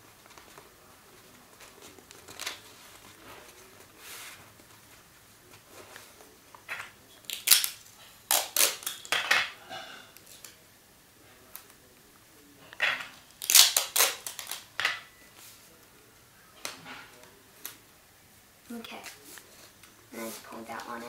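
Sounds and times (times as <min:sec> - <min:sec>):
paper rustling and crinkling: 0:00.0 - 0:09.1.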